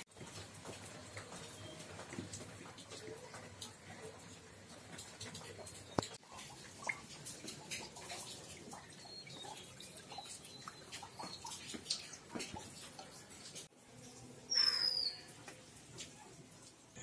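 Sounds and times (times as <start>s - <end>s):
rainwater dripping on concrete: 0.1s - 17.0s
bird whistle: 14.5s - 15.3s.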